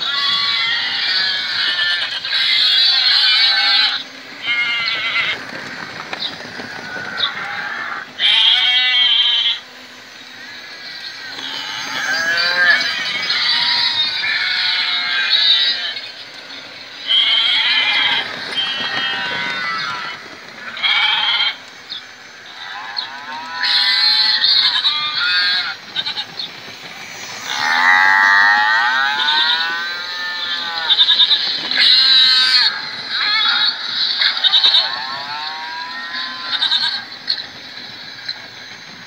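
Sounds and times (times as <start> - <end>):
goats and sheep bleating: 0.0 - 5.6, 6.4 - 9.6, 11.2 - 16.2, 17.0 - 21.7, 22.5 - 26.5, 27.4 - 37.4
cattle mooing: 11.3 - 14.0.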